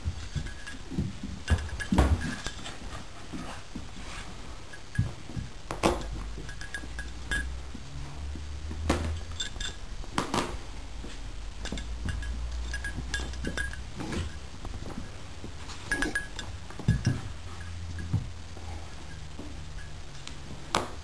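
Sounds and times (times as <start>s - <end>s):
small clinks: 0.2s - 3.0s, 4.7s - 7.9s, 9.1s - 9.9s, 11.6s - 20.5s.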